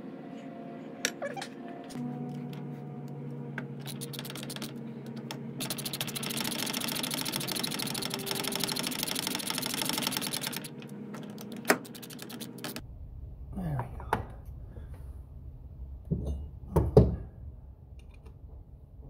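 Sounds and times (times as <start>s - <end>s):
ratchet wrench clicking: 5.6s - 10.7s.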